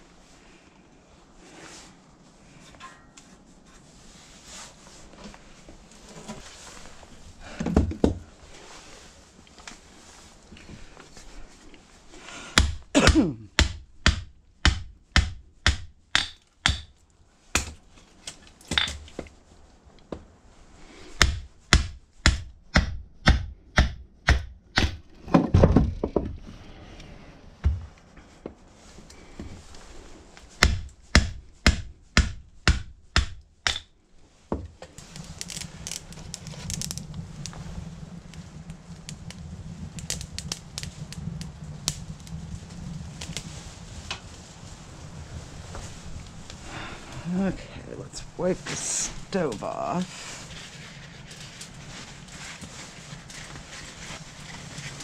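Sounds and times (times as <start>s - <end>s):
low hum with crackling: 0.0s - 55.0s
hatchet chopping wood: 12.6s - 17.0s, 17.6s - 17.8s, 21.2s - 25.0s, 30.6s - 33.9s.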